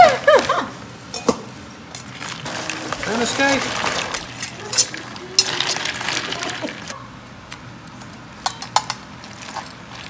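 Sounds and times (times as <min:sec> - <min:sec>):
crabs and ice clinking in metal pot: 0:01.1 - 0:06.9
utensil stirring: 0:01.9 - 0:06.9.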